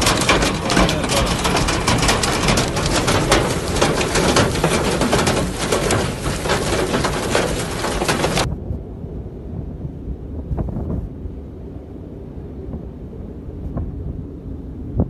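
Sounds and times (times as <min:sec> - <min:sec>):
hail clattering on car roof: 0:00.0 - 0:08.5
low rumble of wind: 0:00.0 - 0:15.0.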